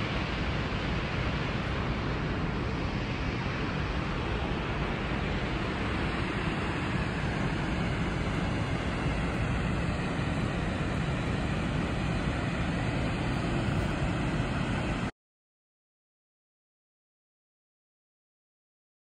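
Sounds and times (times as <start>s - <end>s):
waterfall roaring: 0.0s - 15.1s.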